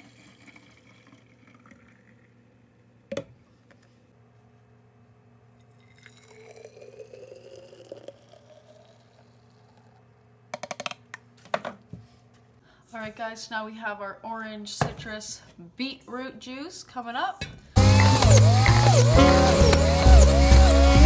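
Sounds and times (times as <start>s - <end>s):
liquid pouring into glass bottle: 0.0s - 2.4s, 5.7s - 9.8s.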